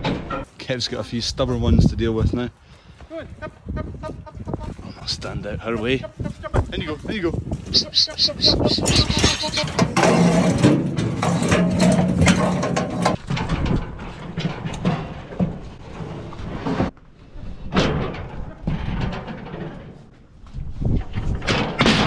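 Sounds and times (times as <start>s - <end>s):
metal cattle crush rattling: 0.0s - 0.8s, 7.7s - 22.0s.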